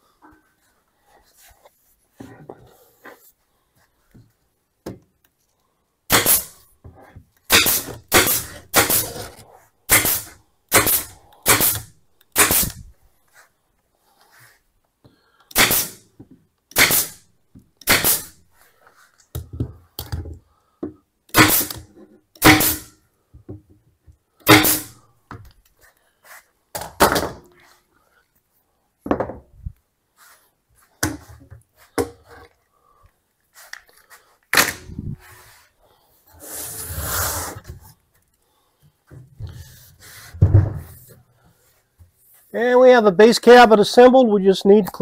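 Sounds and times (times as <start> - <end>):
staple gun firing into wood: 9.9 - 12.8, 15.5 - 16.0, 16.7 - 17.2, 17.8 - 18.3, 21.3 - 21.8, 22.4 - 22.9.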